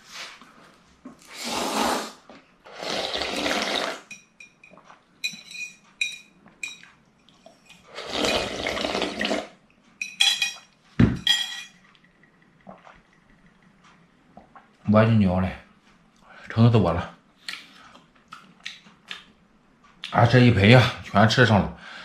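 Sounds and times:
person slurping broth: 0:01.2 - 0:04.1, 0:07.9 - 0:09.6
chopsticks clinking on glass bowl: 0:04.1 - 0:07.8, 0:10.0 - 0:11.8.

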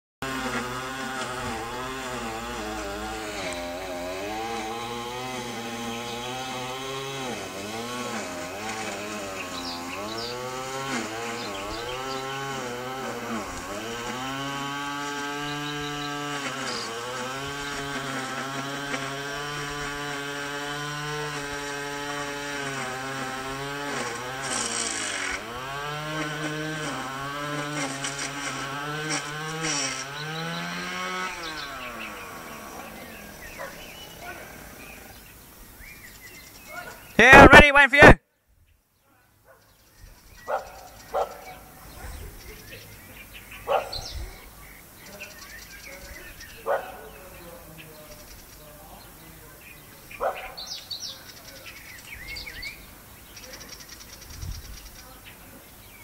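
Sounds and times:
small engine running: 0:00.2 - 0:37.0.

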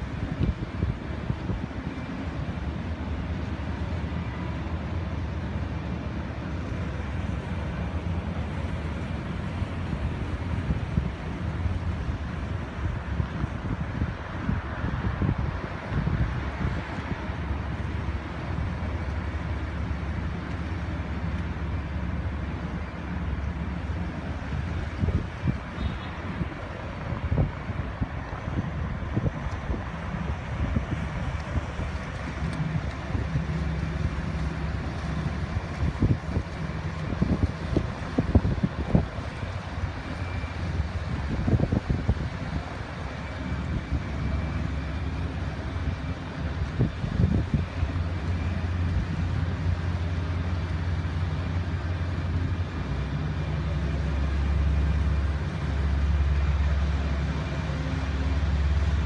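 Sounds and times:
boat engines droning: 0:00.0 - 0:59.0
wind rumbling on microphone: 0:00.0 - 0:59.0.

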